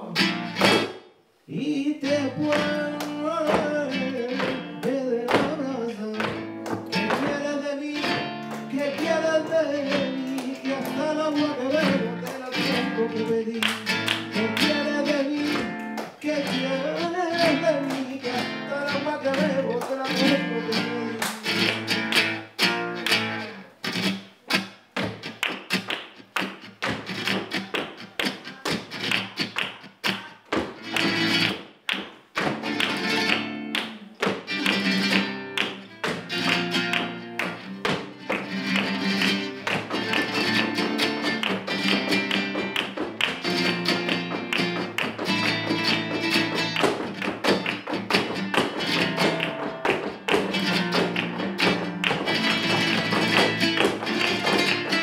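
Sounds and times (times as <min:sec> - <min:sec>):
acoustic guitar playing: 0:00.0 - 0:01.4, 0:02.0 - 0:55.0
hand clapping: 0:02.4 - 0:55.0.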